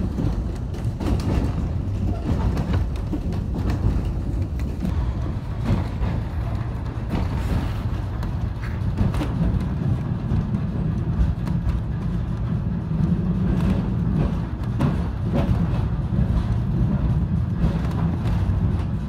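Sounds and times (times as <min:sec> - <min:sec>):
clicks and knocks from rails: 0:00.0 - 0:19.0
tram wheels and motor rumbling: 0:00.0 - 0:19.0.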